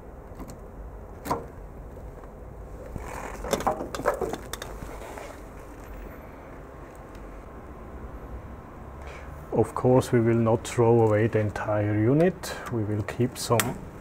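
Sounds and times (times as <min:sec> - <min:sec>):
low steady hum: 0:00.0 - 0:14.0
knocks and rattles on rack: 0:03.4 - 0:04.8
connector click: 0:13.5 - 0:13.8.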